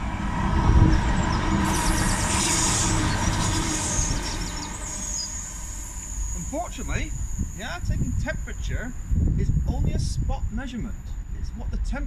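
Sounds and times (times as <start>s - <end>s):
high whine: 0.0s - 12.0s
train rumbling: 0.0s - 12.0s.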